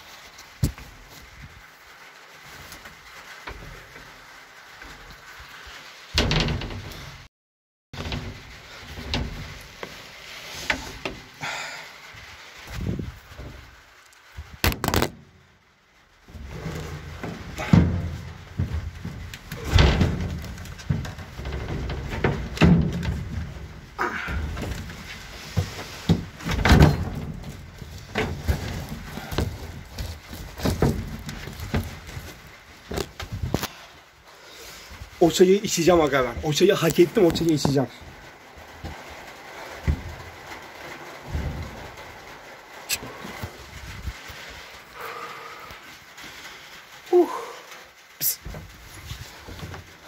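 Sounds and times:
rustling of things handled: 0.0 - 7.3, 8.0 - 50.0
objects knocking and thumping: 6.1 - 7.3, 8.0 - 10.0, 14.6 - 15.2, 16.3 - 33.7, 36.3 - 44.5, 48.4 - 50.0.

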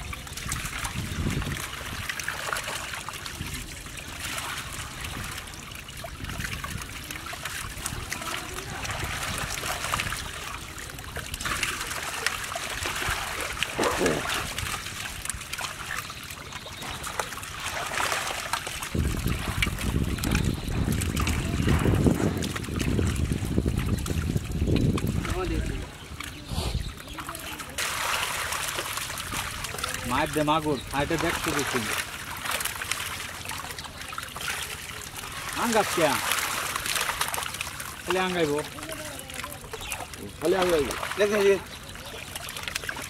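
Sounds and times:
fish thrashing in water: 0.0 - 43.0
trickling water: 0.0 - 43.0.

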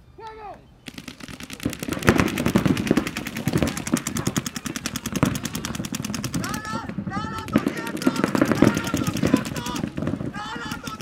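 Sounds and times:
paintball markers firing rapidly: 0.8 - 11.0.

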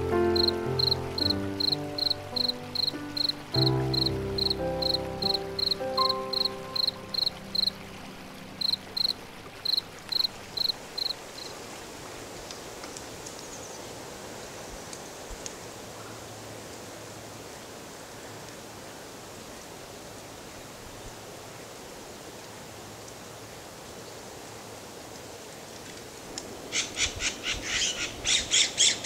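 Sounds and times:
soft sustained music chords: 0.0 - 11.0
background hiss: 0.0 - 29.0
cricket chirping: 0.3 - 7.8, 8.6 - 11.6.

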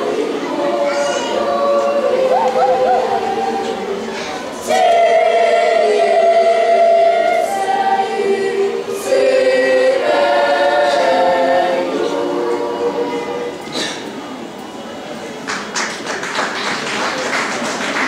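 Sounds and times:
children's choir singing: 0.0 - 14.6.

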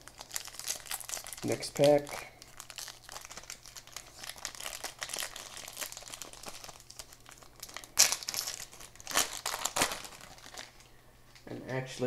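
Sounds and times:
wrapper crinkling: 0.0 - 10.9.

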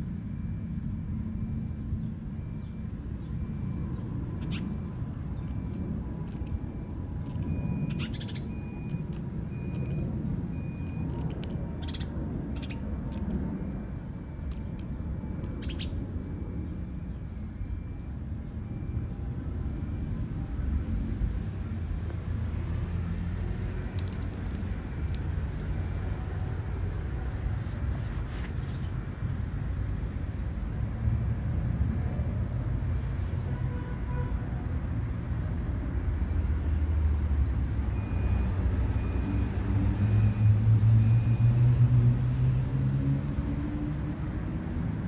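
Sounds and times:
faint high chirp: 0.3 - 21.1
sharp clicks and crackles: 5.4 - 10.1, 10.8 - 13.6, 14.4 - 15.9, 23.8 - 27.0.

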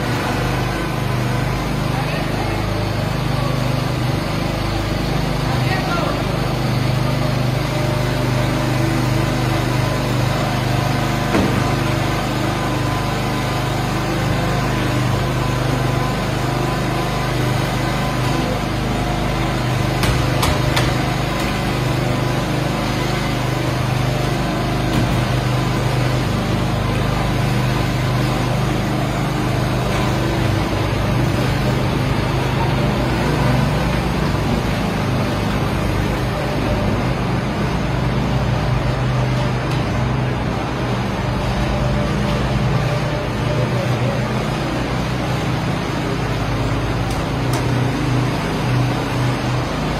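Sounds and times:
small engine droning: 0.0 - 49.9
sharp knocks: 20.0 - 21.0.

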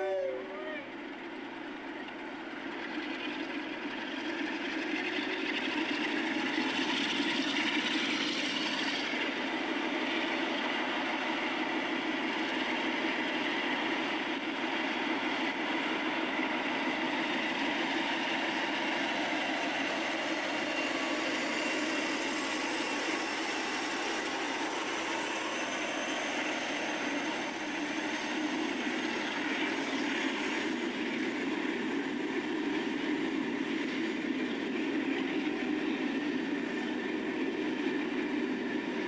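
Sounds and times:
thin high whine: 0.0 - 1.2
diesel locomotive engine running: 0.0 - 39.0.

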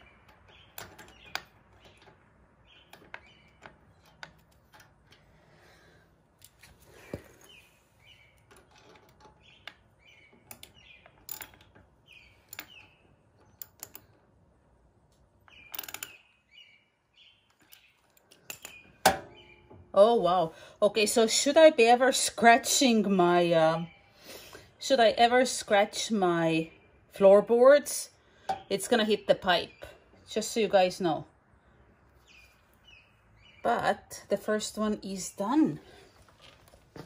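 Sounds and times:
allen key clicks and metal taps: 0.0 - 5.3, 8.4 - 14.4, 15.1 - 16.3, 17.5 - 19.4
small birds chirping: 0.0 - 37.0.

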